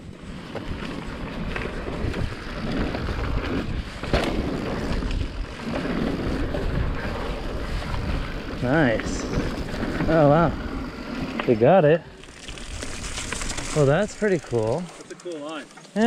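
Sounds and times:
wind buffeting microphone: 0:00.0 - 0:11.4
bike rattling: 0:00.0 - 0:16.0
bike tyres rumbling on dirt: 0:00.0 - 0:16.0.

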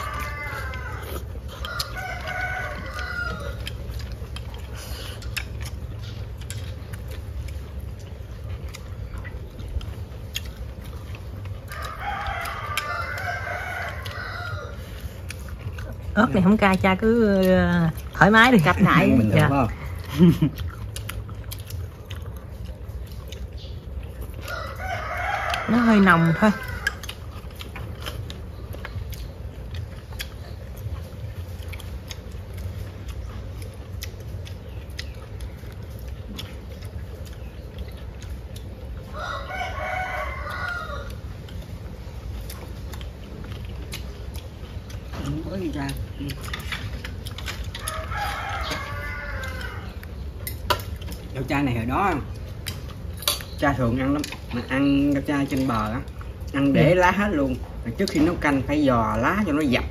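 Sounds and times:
rooster crowing: 0:00.0 - 0:04.0, 0:11.6 - 0:15.0, 0:24.4 - 0:27.2, 0:39.0 - 0:41.4, 0:47.6 - 0:50.1
chewing: 0:00.0 - 0:59.9.

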